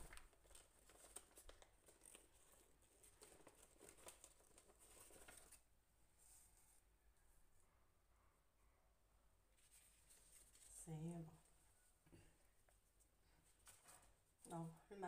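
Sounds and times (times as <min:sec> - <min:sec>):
baking paper rustling: 0:00.0 - 0:06.8, 0:09.6 - 0:11.1, 0:13.3 - 0:14.8.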